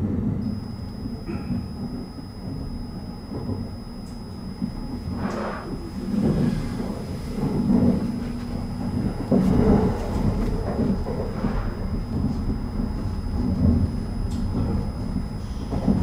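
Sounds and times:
train wheels rumbling on rail: 0.0 - 16.0.

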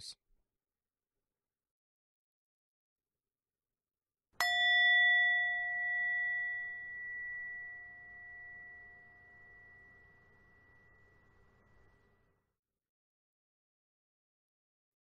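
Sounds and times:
meditation bell ringing: 4.4 - 12.3.

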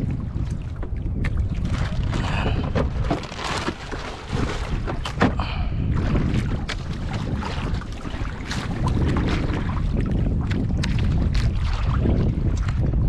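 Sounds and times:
wind buffeting microphone: 0.0 - 13.0
plastic bag crinkling: 3.1 - 4.0.

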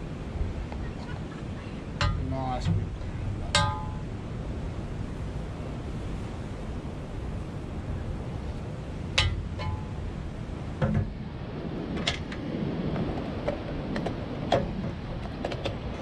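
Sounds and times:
distant surf: 0.0 - 16.0
wind hiss: 0.0 - 16.0
utensils knocking on pan: 2.0 - 2.8, 3.5 - 4.0.

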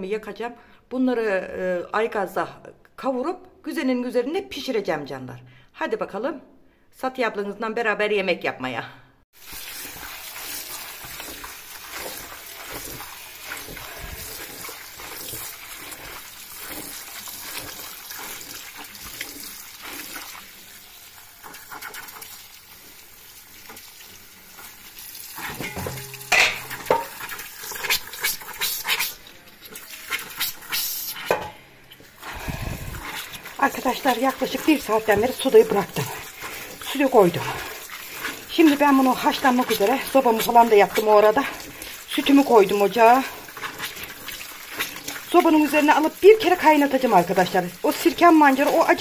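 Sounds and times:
food sizzling in a pan: 9.3 - 49.0
cookware and utensils clattering: 25.4 - 28.3, 31.2 - 32.1.

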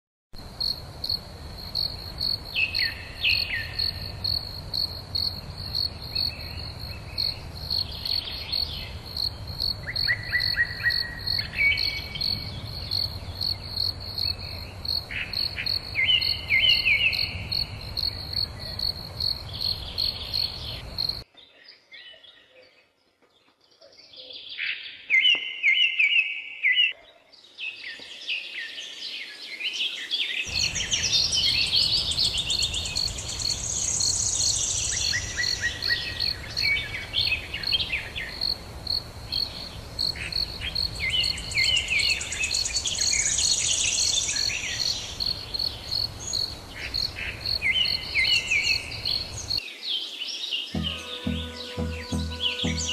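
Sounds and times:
insect chirping: 0.4 - 21.2, 30.5 - 49.6
birds chirping: 30.4 - 38.4, 50.7 - 52.9.

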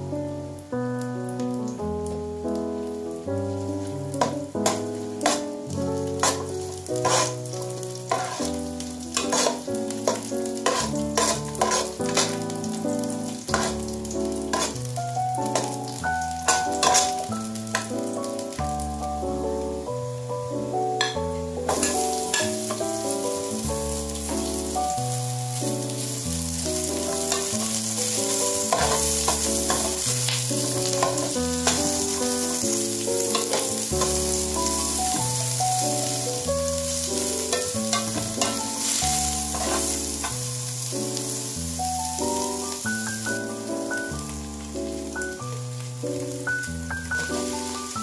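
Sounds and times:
background music: 0.0 - 48.0
food sizzling in hot oil: 0.0 - 48.0
utensil clinking while stirring: 9.2 - 12.3, 14.5 - 14.7.

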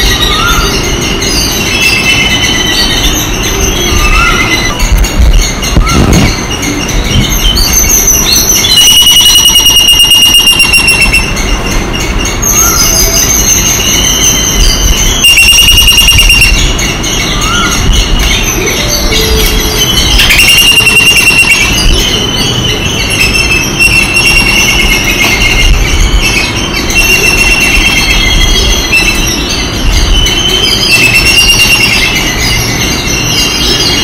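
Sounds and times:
babblers shrill rapid chatter: 0.0 - 34.0.

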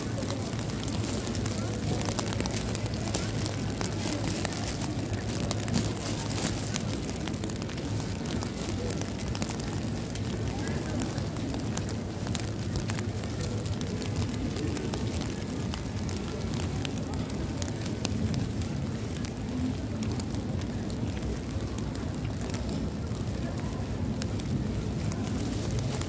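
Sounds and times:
rain on wet street: 0.0 - 26.0.

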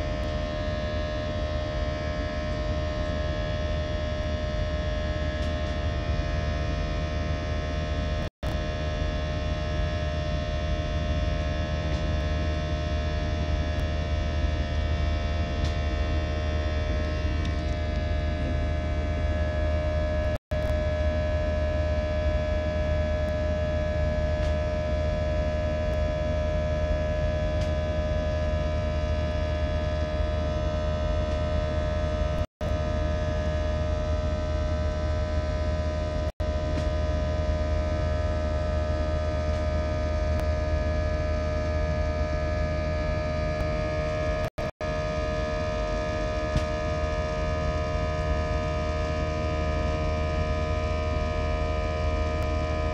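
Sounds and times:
jet engine drone in cabin: 0.0 - 52.9.

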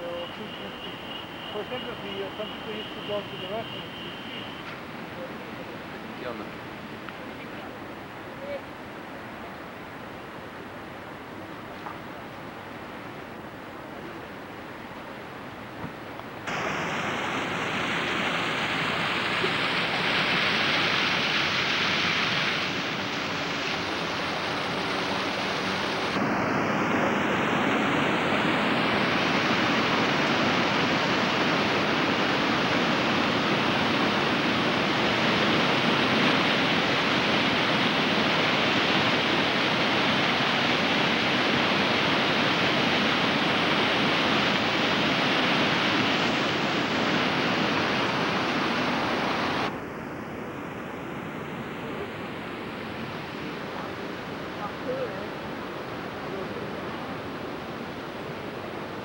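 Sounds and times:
waterfall rushing: 0.0 - 7.0, 16.5 - 49.7.

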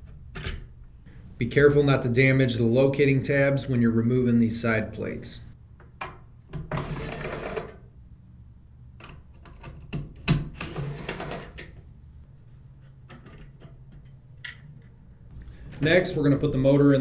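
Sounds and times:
cordless drill running: 10.6 - 11.6.

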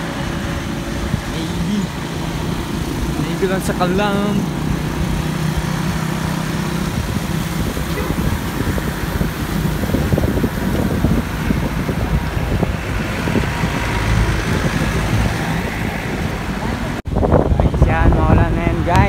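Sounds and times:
motor engine humming: 0.0 - 19.0
road noise: 0.0 - 19.0
wind buffeting microphone: 0.0 - 19.0.

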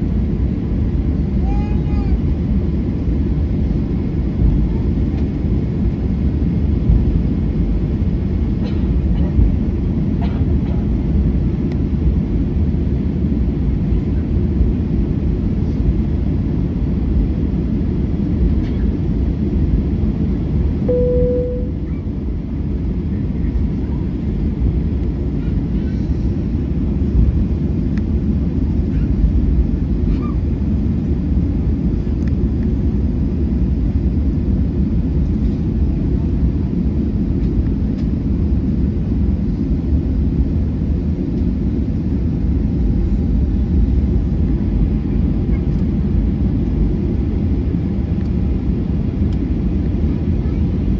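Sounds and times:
airplane cabin rumble: 0.0 - 50.9
short steady tone: 20.9 - 21.9.

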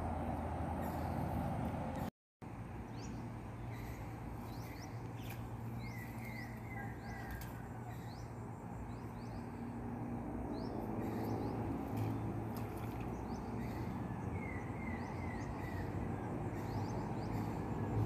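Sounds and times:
birds chirping: 2.8 - 18.0.

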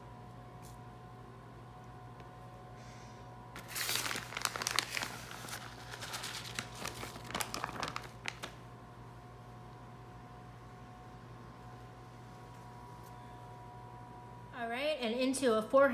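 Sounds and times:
plastic bag crinkling: 3.6 - 8.6.

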